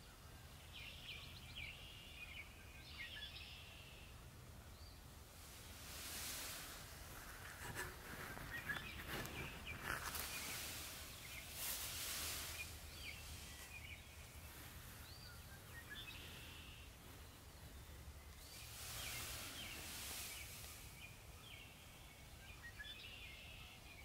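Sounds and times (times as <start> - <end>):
songbird chirps: 0.0 - 24.0
rustling noise: 5.3 - 15.1, 18.4 - 21.2.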